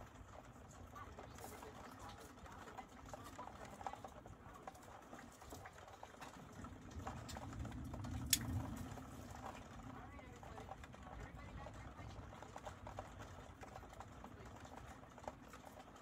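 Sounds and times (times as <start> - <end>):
rain pattering: 0.0 - 16.0.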